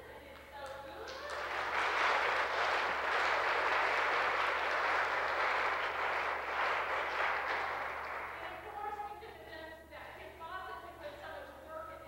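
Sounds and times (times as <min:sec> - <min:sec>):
crowd applauding: 0:01.1 - 0:08.6.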